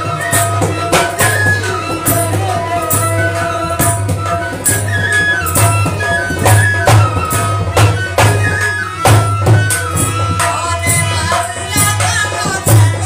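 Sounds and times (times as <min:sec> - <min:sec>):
hand drum beat: 0:00.0 - 0:13.0
harmonium melody: 0:00.0 - 0:13.0
woman singing: 0:09.4 - 0:13.0.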